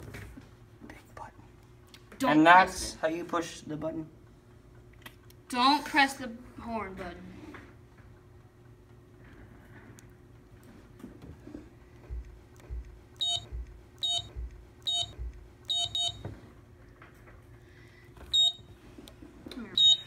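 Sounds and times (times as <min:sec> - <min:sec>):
short high keypad beeps: 0:13.2 - 0:16.2, 0:18.3 - 0:18.6, 0:19.8 - 0:20.0.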